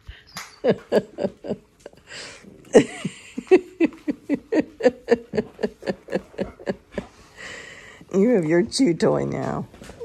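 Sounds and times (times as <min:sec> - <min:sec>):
woman laughing: 0:00.5 - 0:07.6.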